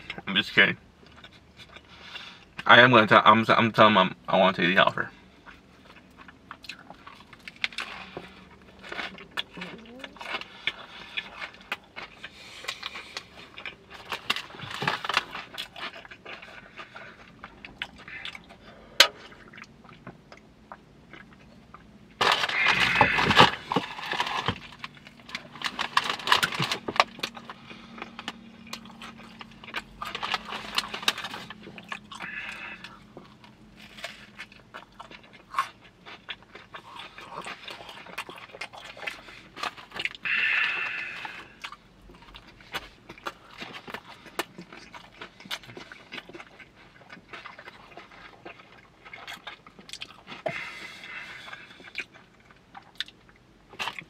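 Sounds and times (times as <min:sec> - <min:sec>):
wet chewing and crunching: 0:00.0 - 0:54.0
snack bag crinkling: 0:22.2 - 0:54.0.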